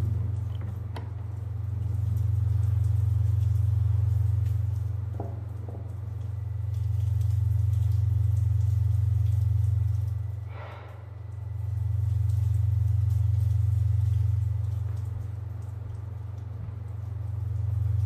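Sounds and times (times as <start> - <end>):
low rumbling drone: 0.0 - 5.1.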